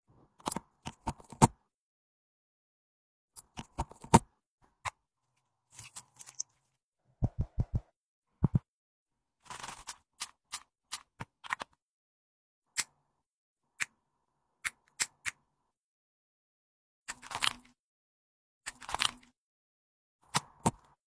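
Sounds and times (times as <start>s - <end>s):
sharp clicks and taps: 7.2s - 8.6s.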